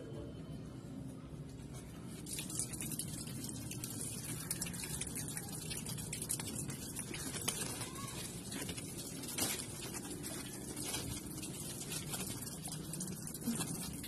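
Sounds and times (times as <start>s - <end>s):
leaves rustling against phone: 6.4s - 14.0s.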